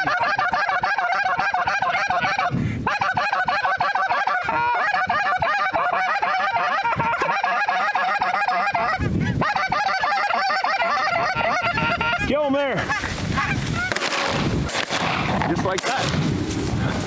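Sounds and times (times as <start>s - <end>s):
geese honking: 0.0s - 16.0s.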